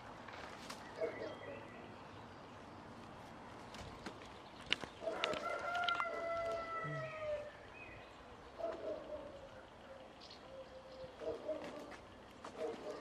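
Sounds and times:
rooster crowing: 5.1s - 7.6s.

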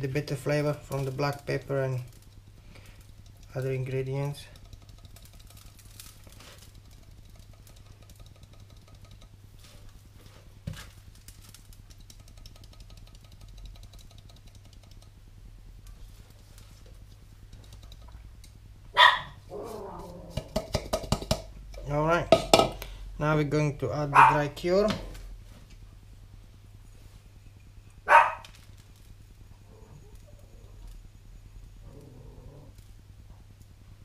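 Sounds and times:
spice sprinkling and rubbing: 0.0s - 18.7s, 24.6s - 31.1s
steady low hum: 0.0s - 34.0s.

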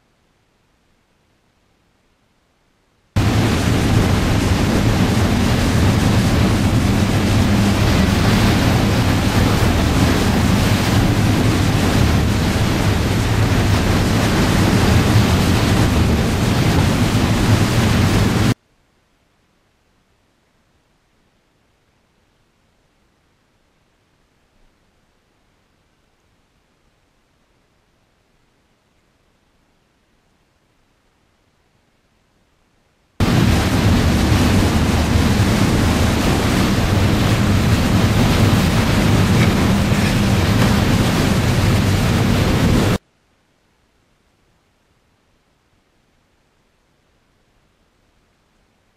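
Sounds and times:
boat engine drone: 3.2s - 18.6s, 33.2s - 43.0s
churning wake water: 3.2s - 18.6s, 33.2s - 43.0s
wind on the microphone: 3.2s - 18.6s, 33.2s - 43.0s
constant low rumble: 3.2s - 32.6s, 33.2s - 48.9s.

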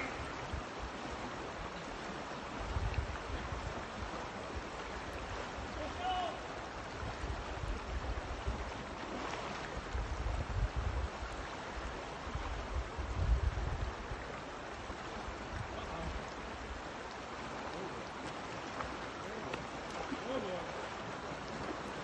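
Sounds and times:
river rushing over rocks: 0.0s - 22.0s
wind rumble on microphone: 2.4s - 5.8s, 6.6s - 16.9s.

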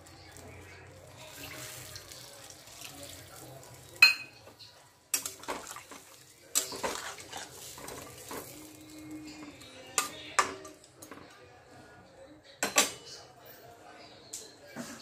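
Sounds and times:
water pouring into pan: 1.1s - 4.0s, 5.2s - 9.1s
spatula scraping pan: 5.4s - 8.9s.

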